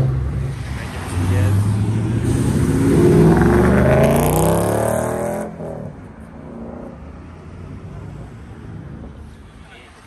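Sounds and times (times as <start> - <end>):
car accelerating away: 1.0 - 7.0.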